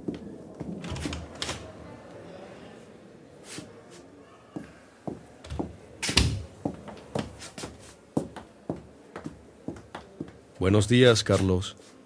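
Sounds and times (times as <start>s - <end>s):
footsteps on hard floor: 6.6s - 10.4s.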